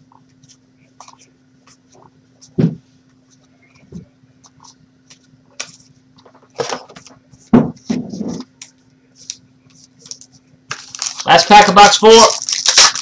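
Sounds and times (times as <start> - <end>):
faint steady hum: 0.0 - 13.0
trading cards clicking and rustling: 8.4 - 13.0.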